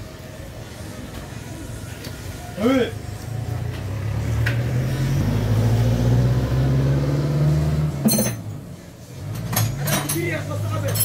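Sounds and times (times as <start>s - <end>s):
sharp metallic clink: 8.0s - 8.5s.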